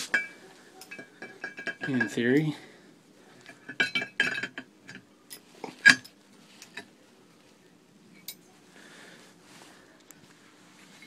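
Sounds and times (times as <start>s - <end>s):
metal plate clinking on bolts: 0.0s - 2.5s, 3.5s - 6.9s.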